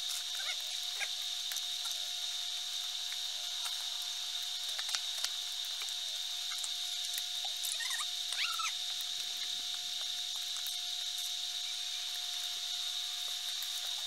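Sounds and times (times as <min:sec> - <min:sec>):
recording hiss with whine: 0:00.0 - 0:14.0.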